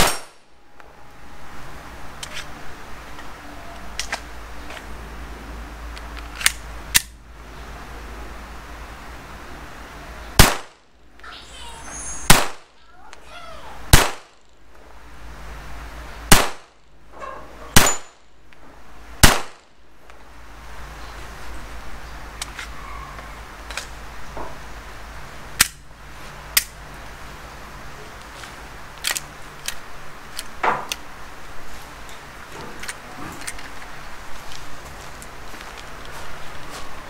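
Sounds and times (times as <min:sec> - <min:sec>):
pistol shots cracking: 0:00.0 - 0:00.4, 0:10.4 - 0:10.8, 0:12.3 - 0:12.7, 0:13.9 - 0:14.3, 0:16.3 - 0:16.7, 0:17.8 - 0:18.2, 0:19.2 - 0:19.6.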